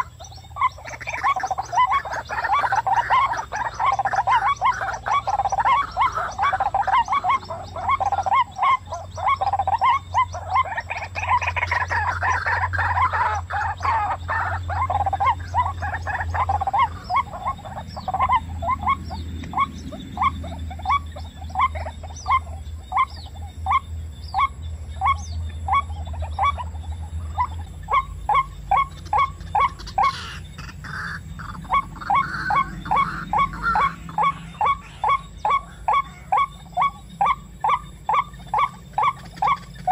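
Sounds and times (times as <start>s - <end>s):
waterhens calling: 0.0s - 39.9s.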